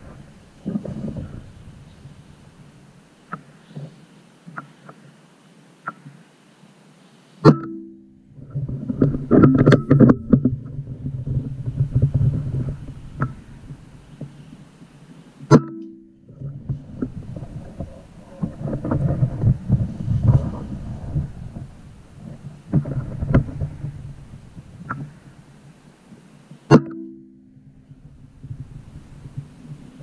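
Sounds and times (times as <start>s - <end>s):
wind buffeting microphone: 0.0s - 3.2s, 8.3s - 15.4s, 16.3s - 26.5s, 27.7s - 30.0s.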